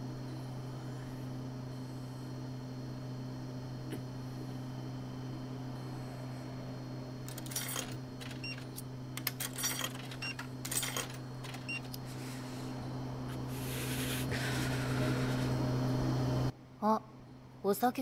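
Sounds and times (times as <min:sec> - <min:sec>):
vending machine humming: 0:00.0 - 0:18.0
coins clinking into slot: 0:07.3 - 0:11.9.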